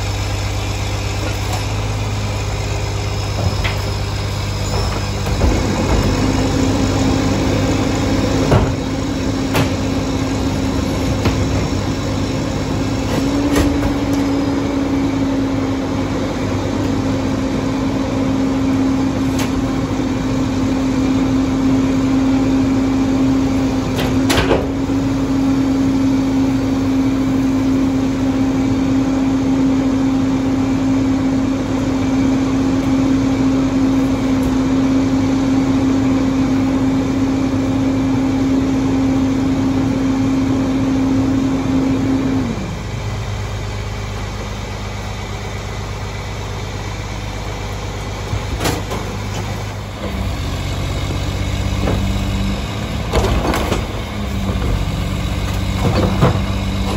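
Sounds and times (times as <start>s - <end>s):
garbage truck diesel engine: 0.0s - 56.9s
hydraulic packer cycle: 0.0s - 56.9s.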